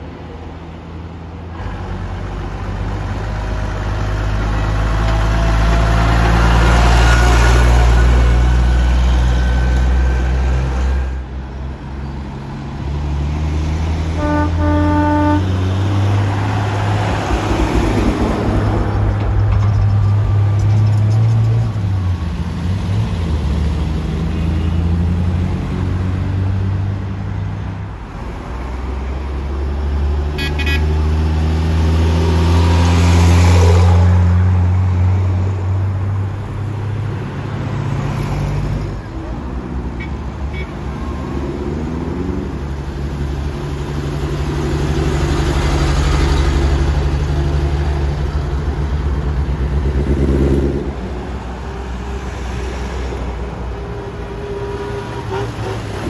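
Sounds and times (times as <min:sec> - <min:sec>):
horn toot: 0:14.2 - 0:15.7, 0:30.4 - 0:30.9.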